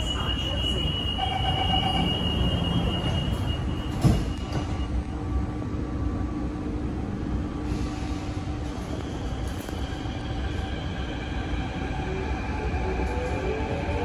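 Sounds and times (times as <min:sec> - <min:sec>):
high steady door warning tone: 0:00.0 - 0:05.0
low rumble of train car: 0:00.0 - 0:14.0
train doors shutting with a thump: 0:01.4 - 0:05.0.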